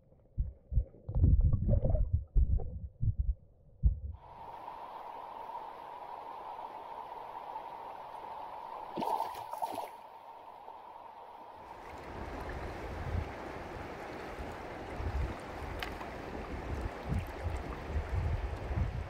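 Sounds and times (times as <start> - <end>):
low irregular bumps: 0.2 - 4.2
water splashes: 8.9 - 10.1, 11.6 - 18.9.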